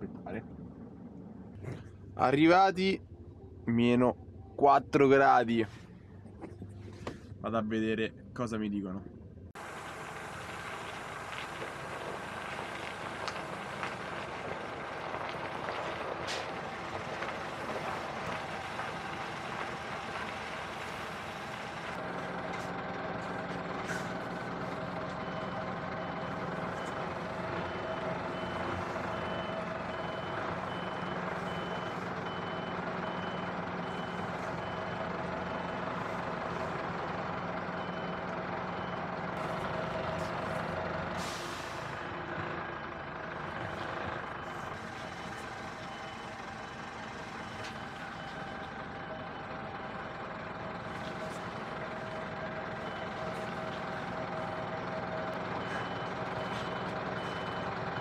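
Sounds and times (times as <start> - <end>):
diesel engine running: 0.0 - 58.0
reversing alarm beeping: 23.8 - 36.6, 43.5 - 49.5, 51.1 - 58.0
air brake hiss: 41.2 - 42.0.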